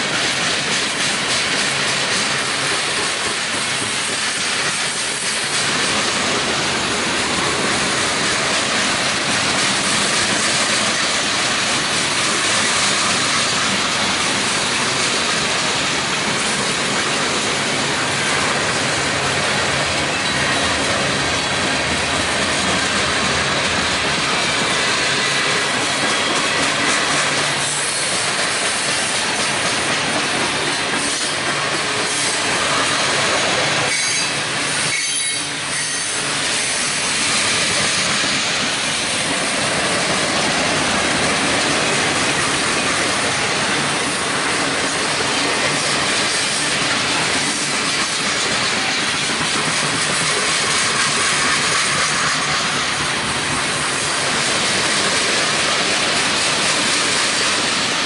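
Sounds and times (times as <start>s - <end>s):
freight train cars rolling past: 0.0s - 58.0s
high wheel squeal: 33.8s - 38.5s.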